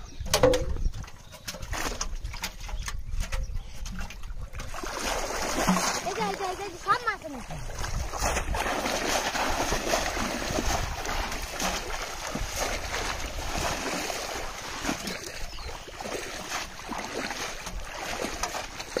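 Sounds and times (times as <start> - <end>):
person wading through water: 3.9 - 19.0.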